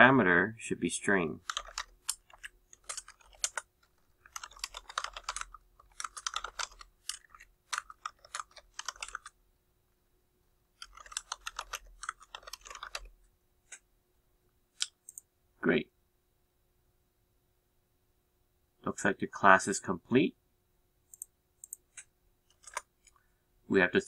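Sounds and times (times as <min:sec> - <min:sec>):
computer keyboard typing: 0:01.4 - 0:09.4, 0:10.8 - 0:13.1, 0:21.1 - 0:22.9.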